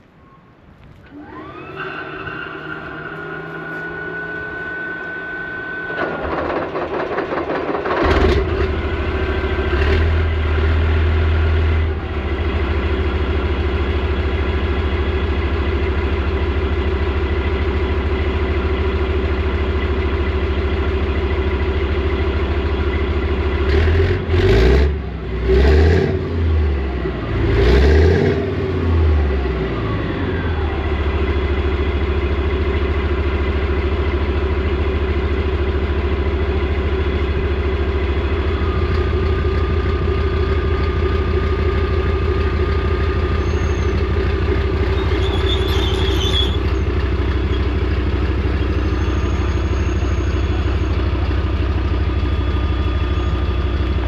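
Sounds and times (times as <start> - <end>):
high whine: 0.0 - 6.9, 29.2 - 54.0
diesel engine cranking: 1.0 - 54.0
diesel engine idling and revving: 1.2 - 54.0.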